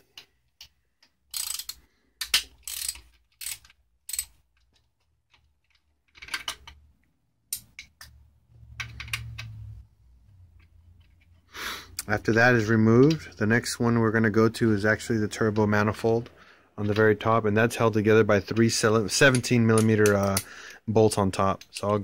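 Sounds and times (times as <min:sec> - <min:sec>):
socket ratchet clicking: 0:00.6 - 0:04.4.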